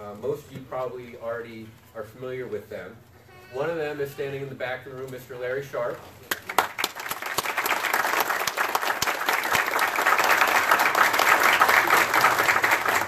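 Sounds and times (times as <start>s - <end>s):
audience applause: 6.3s - 13.0s.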